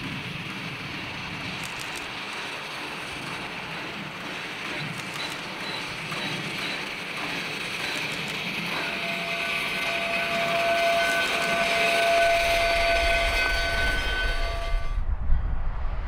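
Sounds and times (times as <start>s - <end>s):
diesel locomotive rumble: 0.0s - 15.3s
steam locomotive whistle: 7.9s - 15.0s.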